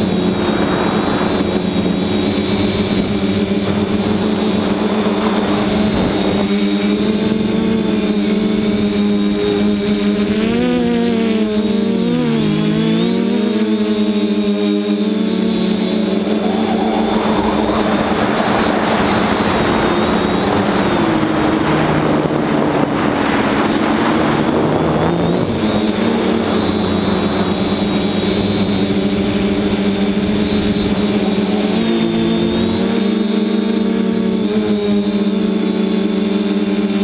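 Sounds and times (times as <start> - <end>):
rushing noise: 0.0 - 7.2, 15.6 - 33.1
drone motors whining: 0.0 - 37.0.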